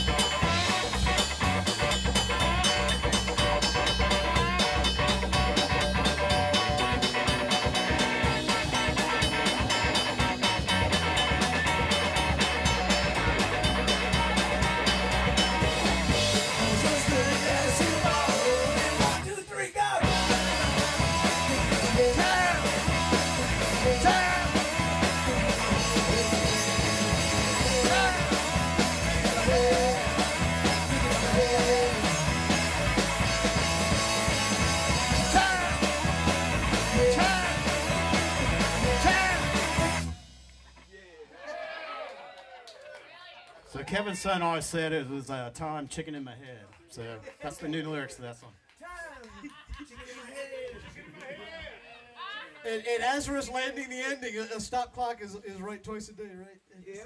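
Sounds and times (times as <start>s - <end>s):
electric guitars: 0.0s - 19.3s, 20.0s - 40.9s
drum kit: 0.0s - 41.0s
bass guitar: 0.0s - 41.2s
person singing: 16.4s - 32.5s, 35.0s - 36.0s, 36.7s - 39.8s.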